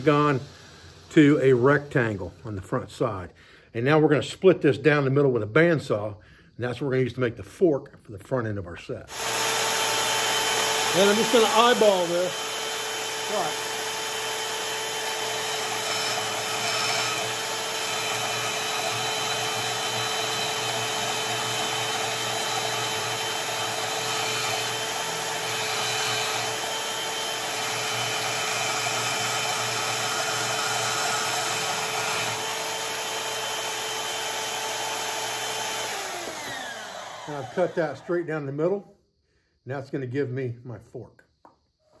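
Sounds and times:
bandsaw cutting steel bar: 9.1s - 38.1s.

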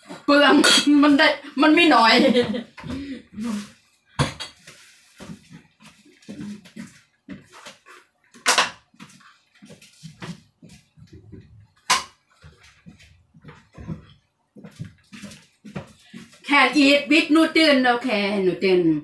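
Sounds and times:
dishes and utensils clattering: 4.2s - 4.7s.

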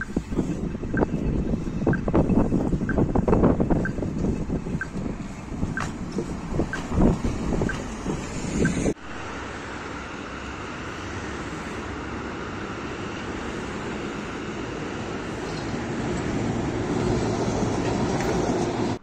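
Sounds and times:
road traffic: 0.0s - 19.0s
tram rumbling on rails: 0.0s - 19.0s.

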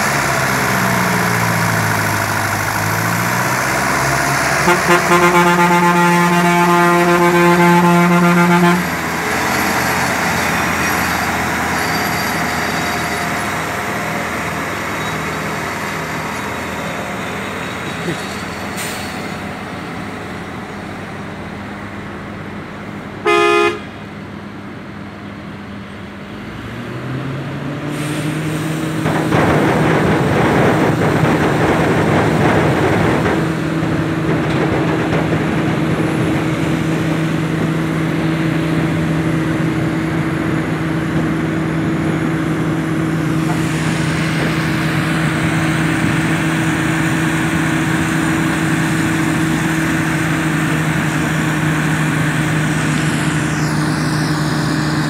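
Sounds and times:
tractor diesel engine running: 0.0s - 26.8s, 27.9s - 55.0s
horn blast: 4.6s - 9.0s, 23.2s - 24.0s.

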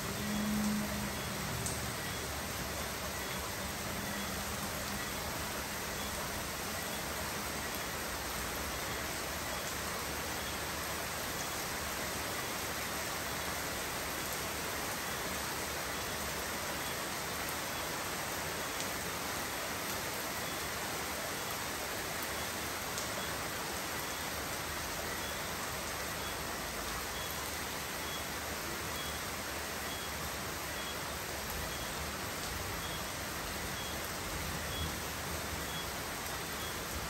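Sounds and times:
steady rain falling: 0.0s - 37.0s.

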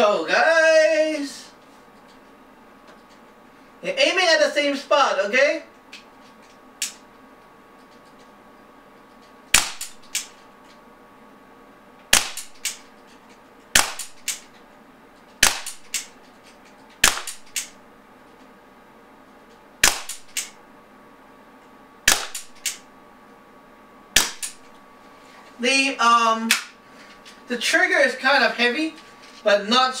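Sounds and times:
air pistol shots cracking: 9.5s - 10.4s, 12.1s - 12.9s, 13.7s - 14.5s, 15.4s - 16.2s, 17.0s - 17.8s, 19.8s - 20.6s, 22.0s - 22.9s, 24.1s - 24.6s.

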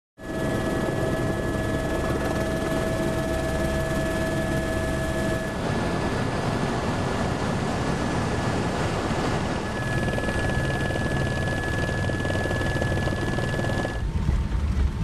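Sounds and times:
high whine: 0.2s - 6.2s, 9.5s - 14.0s
helicopter engine and rotor drone: 0.2s - 14.1s.

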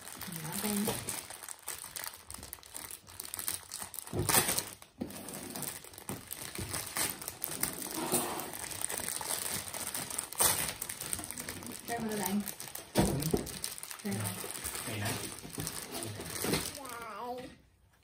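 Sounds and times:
plastic bag crinkling: 0.0s - 17.2s.

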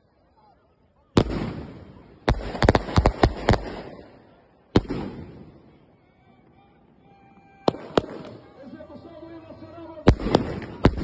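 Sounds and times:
fireworks bangs with rumbling echo: 1.2s - 5.8s, 7.3s - 8.6s, 10.0s - 11.0s.

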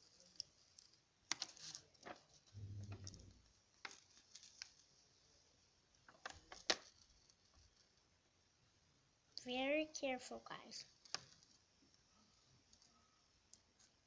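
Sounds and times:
paper rustling and clicking: 0.0s - 5.0s, 6.1s - 8.0s, 11.0s - 11.6s
soft low bump: 2.5s - 3.5s.

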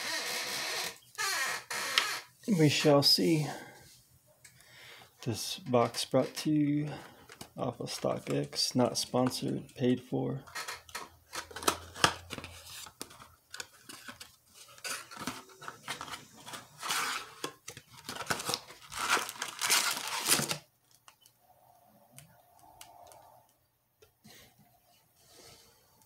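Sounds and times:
plastic wrappers crinkling: 10.6s - 21.3s.

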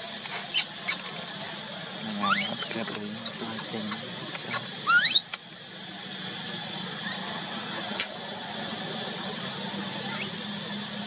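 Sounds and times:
steady low hum: 0.0s - 11.0s
baby monkey squealing: 0.4s - 1.1s, 2.1s - 5.4s.

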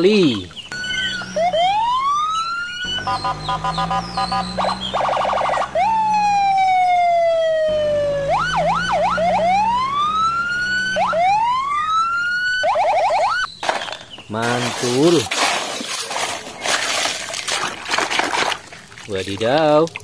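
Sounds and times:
electronic police siren: 0.7s - 13.5s.

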